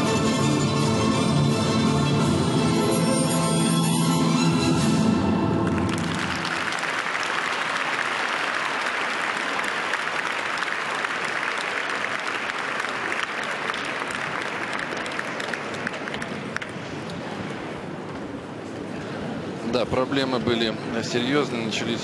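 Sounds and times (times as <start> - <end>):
audience applauding: 5.4 - 17.0.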